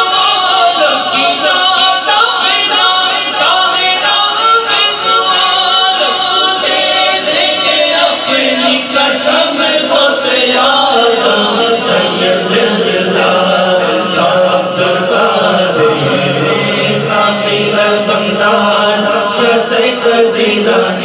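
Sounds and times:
lead reciter's wavering melody: 0.0 - 21.0
men chanting devotional song: 0.0 - 21.0.

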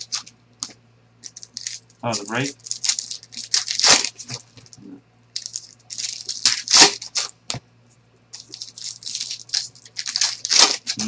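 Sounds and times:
foil packs crinkling: 1.2 - 4.8, 5.4 - 7.4, 8.4 - 11.0.

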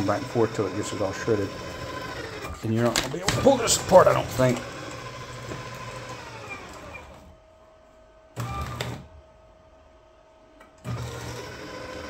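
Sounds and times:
paper shredder motor: 0.0 - 7.4, 8.4 - 9.1, 10.8 - 12.0.

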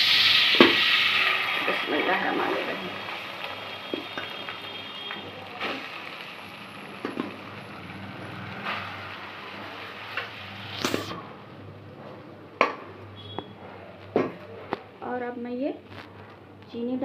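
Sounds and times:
steady hiss: 0.0 - 11.2.

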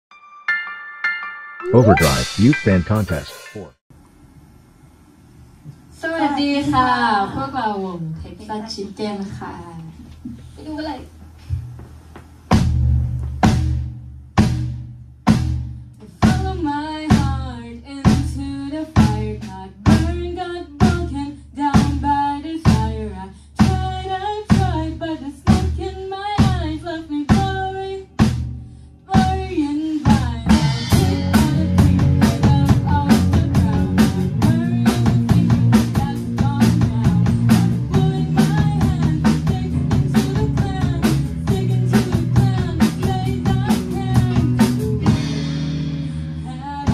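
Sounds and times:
bass guitar: 1.7 - 3.3, 30.1 - 46.9
girl singing: 29.1 - 45.1.

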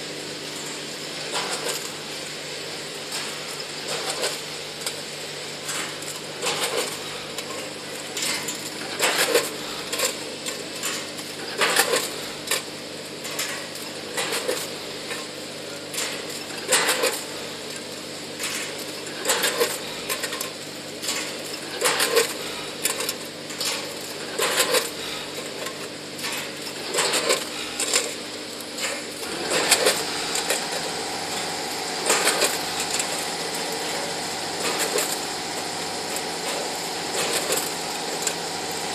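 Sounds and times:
steady machine hum: 0.0 - 38.9
steady running noise: 23.6 - 38.9.

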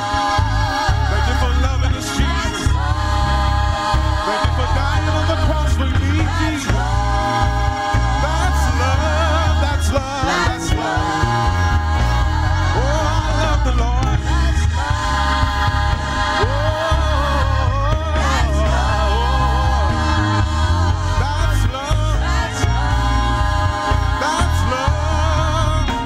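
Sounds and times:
gospel singing: 0.0 - 26.0
heavy bass: 0.0 - 26.0.

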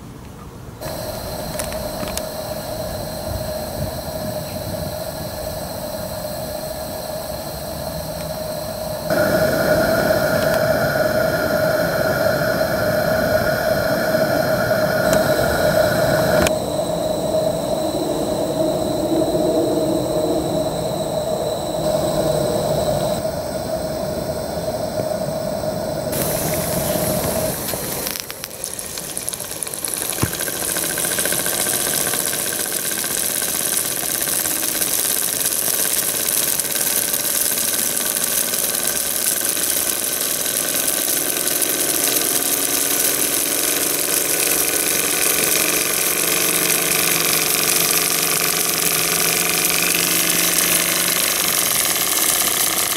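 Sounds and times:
steady hum with held tone: 0.0 - 52.9
click: 0.2 - 2.6, 8.1 - 8.4, 10.2 - 10.7, 15.0 - 15.6
steam hissing: 0.8 - 52.9.

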